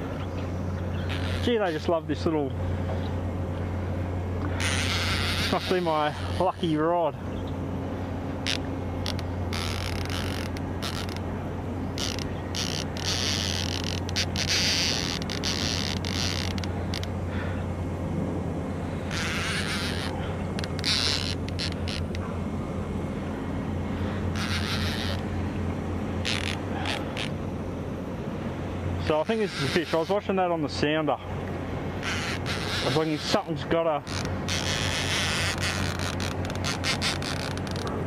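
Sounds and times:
fishing reel drag clicking: 8.4 - 11.2, 12.0 - 17.1, 19.1 - 22.2, 24.3 - 25.2.

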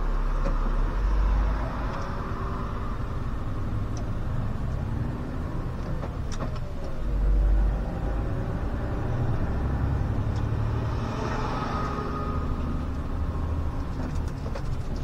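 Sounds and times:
bus engine rumbling: 0.0 - 15.0
road noise: 0.0 - 15.0
sharp clicks and rattles: 12.9 - 15.0.

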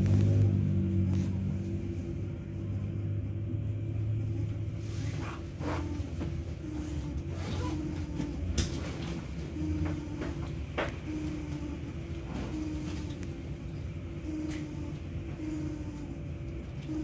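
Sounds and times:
tram running gear hum: 0.0 - 17.0
knocks and rattles from tram car: 8.1 - 14.0.

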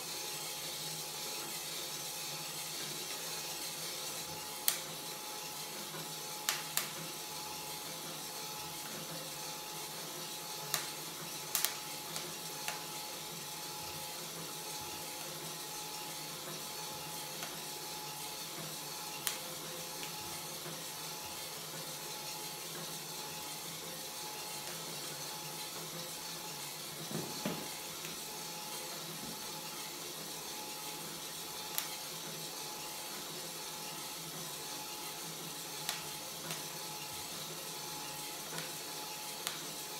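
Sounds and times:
burner hiss: 0.0 - 39.9
roaster drum motor hum: 0.0 - 39.9.

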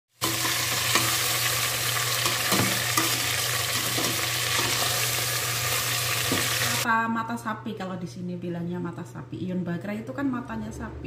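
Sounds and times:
meat sizzling in oil: 0.1 - 6.8.

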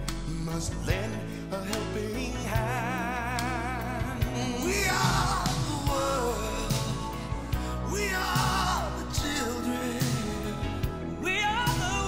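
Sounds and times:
band accompaniment: 4.2 - 11.0.

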